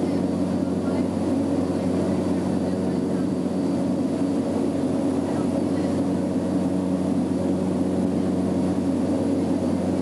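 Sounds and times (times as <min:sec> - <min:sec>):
aircraft engine drone: 0:00.0 - 0:10.0.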